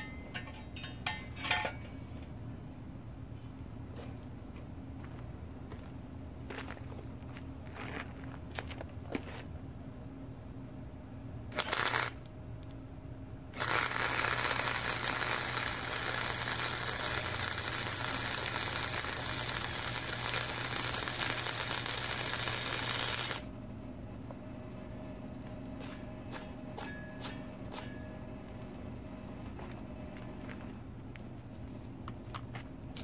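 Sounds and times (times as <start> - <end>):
welder arc crackling and hissing: 11.5 - 12.3, 13.6 - 23.5.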